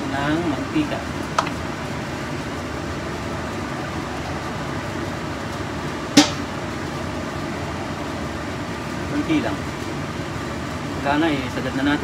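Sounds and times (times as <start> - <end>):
fan-like hum: 0.0 - 12.0
sharp clink: 6.2 - 6.5.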